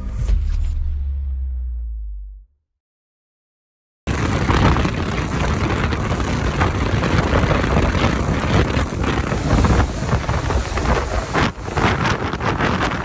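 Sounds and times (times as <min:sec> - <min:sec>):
hull cutting through water: 0:04.1 - 0:13.0
motorboat engine drone: 0:04.1 - 0:13.0
wind on microphone: 0:04.1 - 0:13.0.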